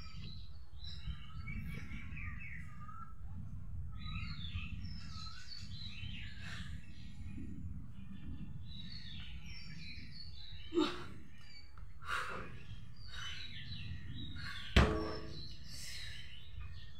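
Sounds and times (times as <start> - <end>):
birds chirping: 3.9 - 16.9
barbell clanking on ground: 14.8 - 15.7.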